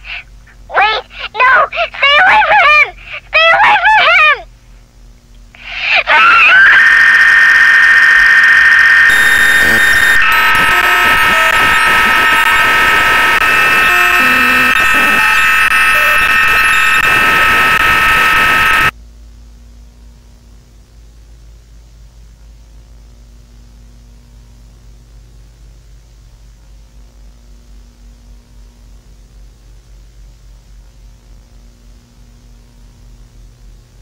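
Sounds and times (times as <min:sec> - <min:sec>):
harsh electronic alarm tone: 0:06.1 - 0:18.9.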